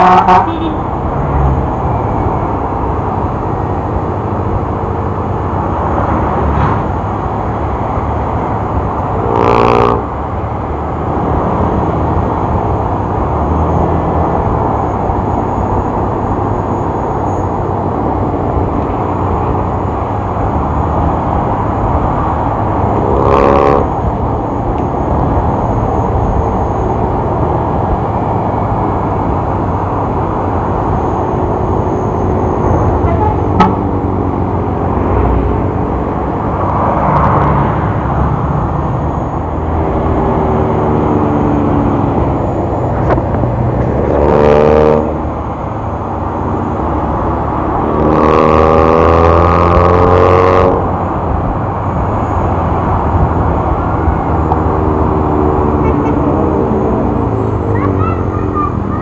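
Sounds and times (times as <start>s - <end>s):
vehicle horn: 0.0s - 0.9s, 9.2s - 10.0s, 23.0s - 23.9s, 33.0s - 33.9s, 55.8s - 56.4s.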